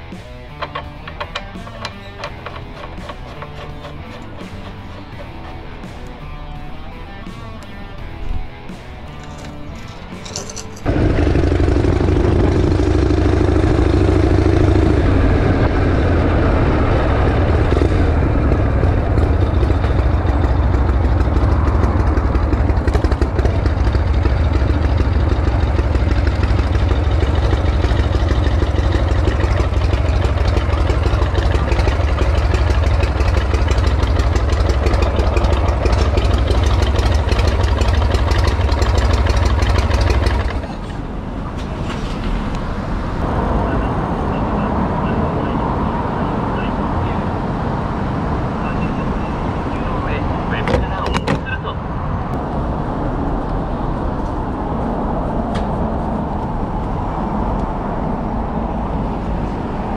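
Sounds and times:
motorcycle engine running: 0:00.0 - 0:07.6, 0:09.0 - 0:41.1.

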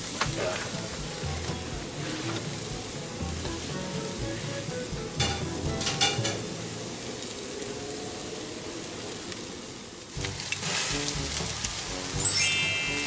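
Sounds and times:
meat sizzling on a grill: 0:00.1 - 0:06.8, 0:10.2 - 0:12.3.

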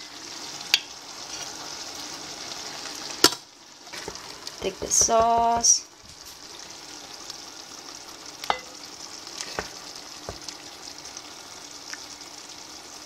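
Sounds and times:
sauce simmering with high hiss: 0:00.0 - 0:13.0.

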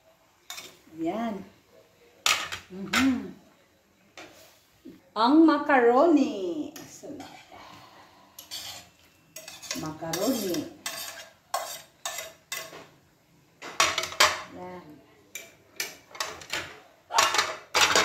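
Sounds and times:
spoon stirring in a metal pan: 0:00.4 - 0:00.9, 0:06.7 - 0:07.6, 0:08.3 - 0:13.0, 0:13.6 - 0:14.5, 0:15.3 - 0:18.0
spoon scraping on a plate: 0:08.3 - 0:12.9.

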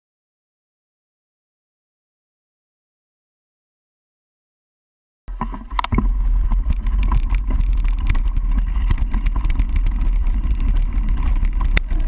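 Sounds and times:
bike rattling and knocking: 0:05.3 - 0:12.0
wind buffeting microphone: 0:05.3 - 0:12.0.

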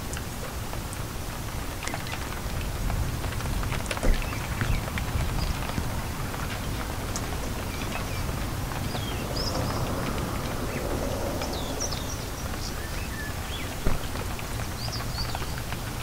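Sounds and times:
steady rain: 0:00.0 - 0:16.0.

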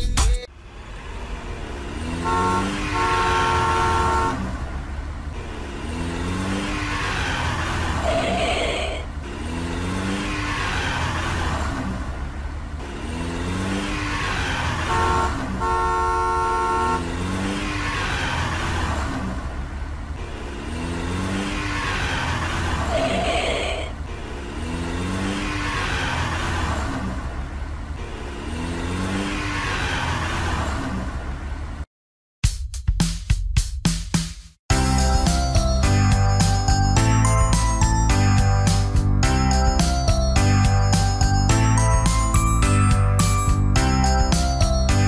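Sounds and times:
car engine revving: 0:00.6 - 0:31.8
car horn honking: 0:02.2 - 0:04.5, 0:14.8 - 0:17.1.

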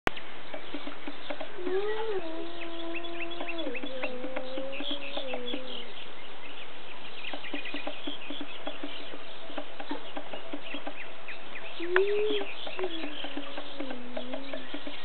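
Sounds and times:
chorus of high chirps: 0:00.5 - 0:15.0
low rising and falling call: 0:11.6 - 0:15.0.

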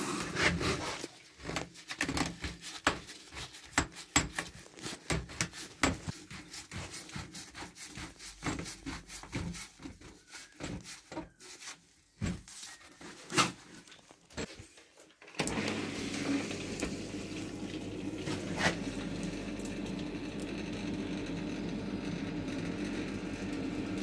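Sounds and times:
plastic pipe rubbing and creaking: 0:00.0 - 0:14.7.

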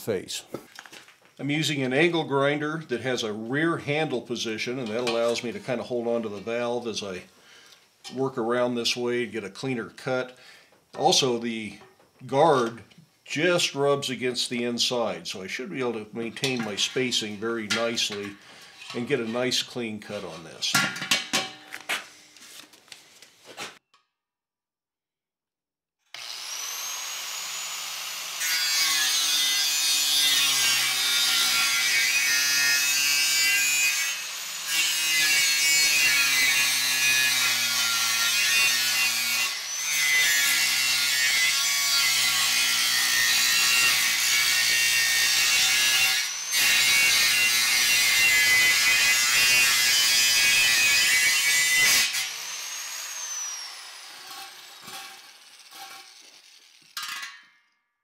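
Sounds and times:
angle grinder whining: 0:26.1 - 0:57.0
grinder cutting steel screech: 0:26.2 - 0:57.2.

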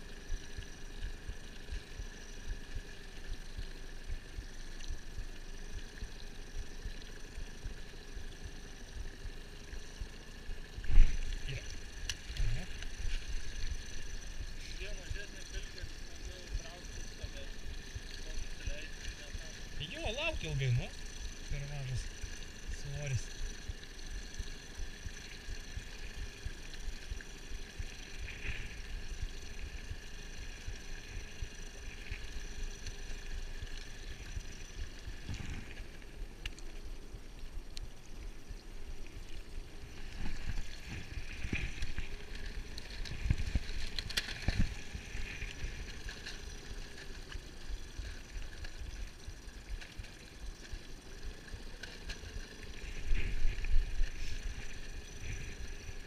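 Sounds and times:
faint steady hum: 0:00.0 - 0:56.0
water lapping around boat: 0:00.0 - 0:56.0.

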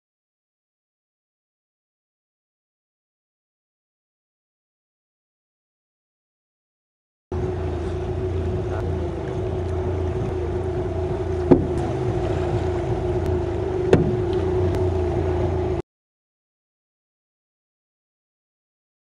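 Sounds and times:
engine hum: 0:07.3 - 0:15.8
sharp knocks: 0:11.5 - 0:11.8, 0:13.9 - 0:14.2.

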